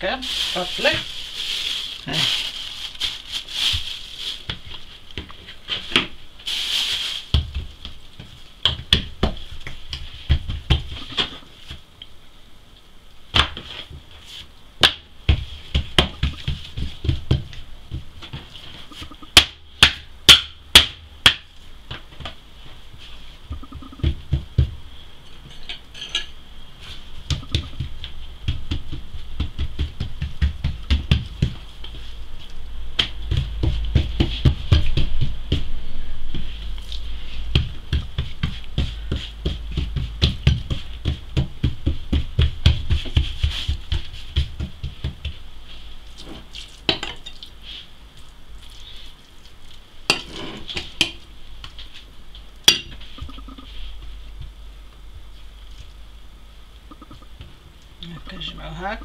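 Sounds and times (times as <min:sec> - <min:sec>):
hands slapping dough on wood: 0:07.3 - 0:11.8, 0:13.3 - 0:13.8, 0:14.8 - 0:18.4, 0:19.0 - 0:22.4, 0:27.3 - 0:32.0, 0:33.0 - 0:35.7, 0:37.5 - 0:45.4.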